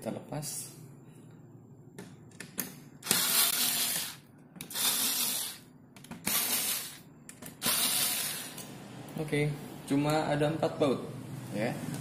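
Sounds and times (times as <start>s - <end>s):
screwdriver bursts: 3.0s - 7.0s, 7.6s - 8.6s.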